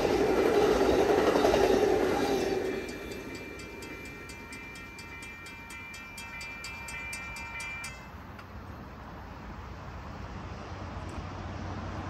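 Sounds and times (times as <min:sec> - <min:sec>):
railroad crossing bell ringing: 0:00.0 - 0:08.6
passing train rumble: 0:00.0 - 0:12.0.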